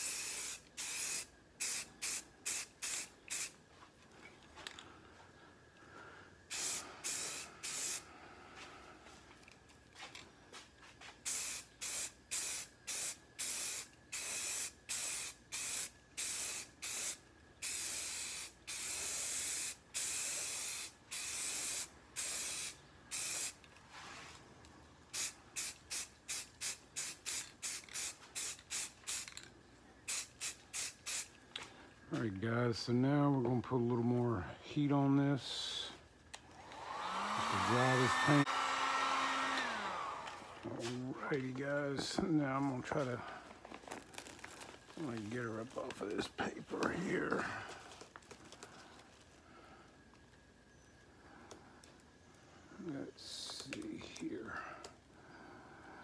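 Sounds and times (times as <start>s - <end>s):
aerosol spray can hissing: 0.0s - 3.6s, 6.5s - 8.1s, 11.2s - 23.6s, 25.1s - 29.4s, 30.1s - 31.3s.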